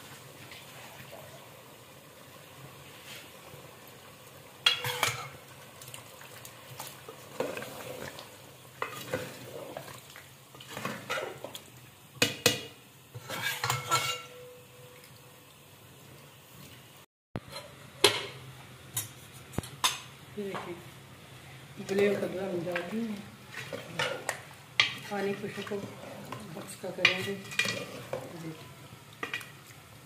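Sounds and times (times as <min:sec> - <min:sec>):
ladle scraping metal pot: 0:13.2 - 0:14.4, 0:23.5 - 0:28.3.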